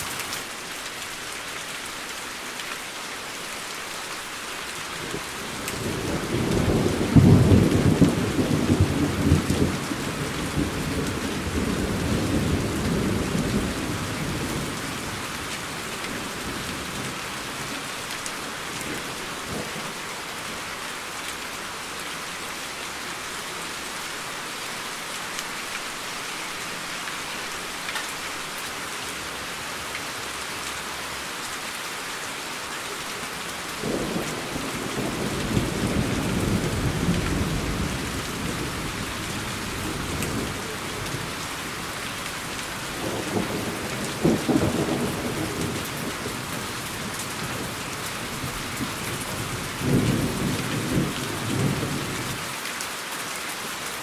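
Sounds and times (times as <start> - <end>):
steady rain falling: 0.0 - 54.0
thunder rumbling: 33.8 - 52.4.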